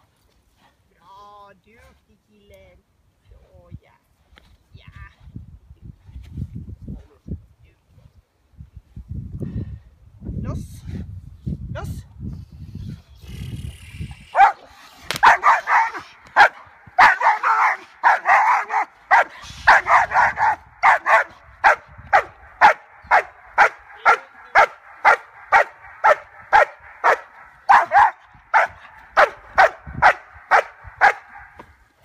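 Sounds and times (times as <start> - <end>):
dog barking: 14.4 - 14.6, 15.2 - 31.6.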